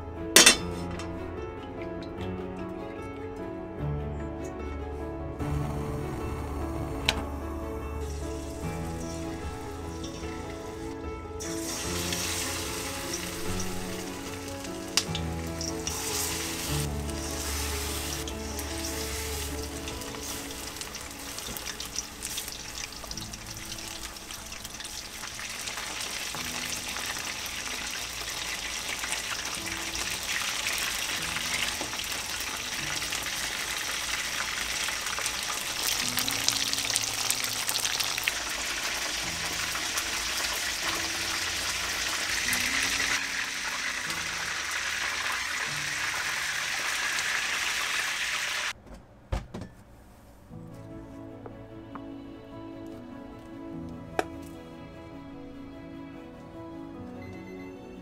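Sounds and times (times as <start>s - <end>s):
soft background music: 0.0s - 48.6s, 49.7s - 58.0s
food frying in hot oil: 8.4s - 48.8s.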